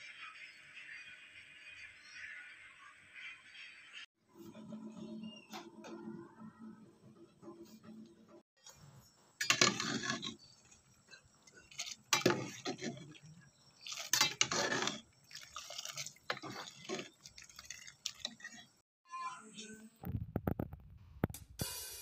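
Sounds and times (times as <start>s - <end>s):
metal spoon clattering against pot: 9.4s - 10.4s
liquid splashing: 11.5s - 18.8s.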